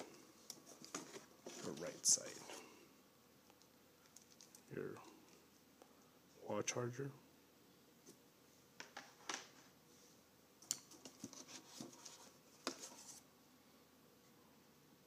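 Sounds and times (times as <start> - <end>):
hands handling packaging in box: 0.0 - 2.6.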